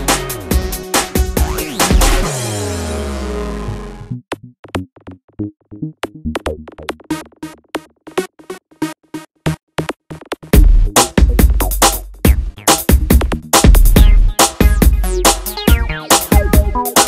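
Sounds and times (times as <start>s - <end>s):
drum machine hits: 0.0s - 2.4s, 10.1s - 17.0s
electronic beat with heavy bass: 0.0s - 2.4s, 9.8s - 17.0s
synth chord: 0.0s - 4.2s.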